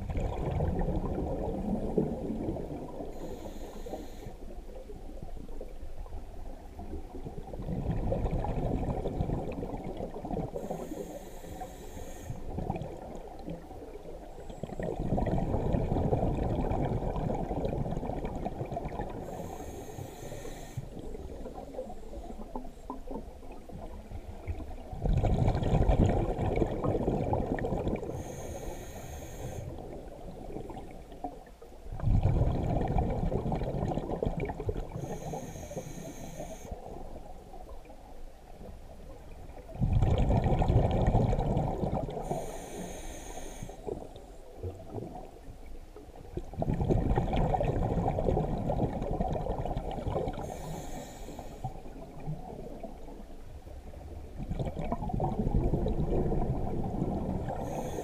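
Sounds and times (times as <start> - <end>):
regulator inhale hiss: 3.0 - 4.6, 10.6 - 12.6, 19.2 - 21.2, 28.0 - 29.9, 34.9 - 37.0, 42.2 - 44.1, 50.3 - 52.0, 57.5 - 58.0.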